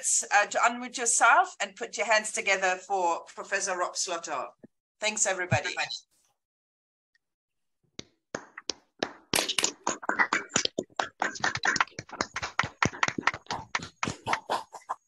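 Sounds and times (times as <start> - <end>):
hands clapping: 8.0 - 15.0.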